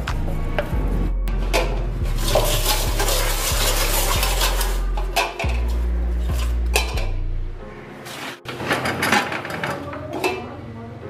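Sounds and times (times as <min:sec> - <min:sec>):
background music with bass: 0:00.0 - 0:08.4
cooking pot and lid clattering: 0:01.4 - 0:07.2, 0:08.4 - 0:10.5
pot clanking: 0:01.4 - 0:07.2, 0:08.5 - 0:10.6.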